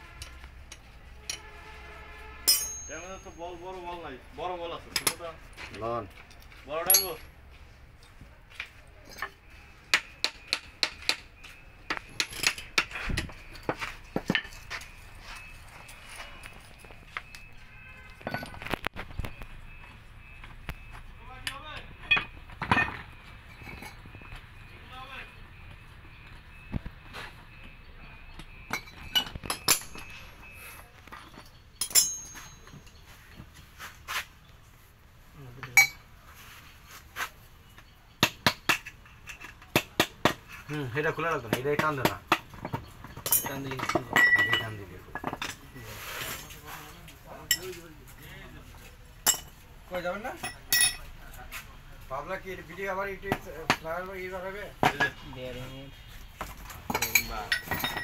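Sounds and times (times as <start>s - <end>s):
metal tools clinking on metal: 2.4s - 4.0s, 4.8s - 7.4s, 9.0s - 18.8s, 21.4s - 24.4s, 28.3s - 33.5s, 35.6s - 36.1s, 38.4s - 51.2s, 56.4s - 58.0s.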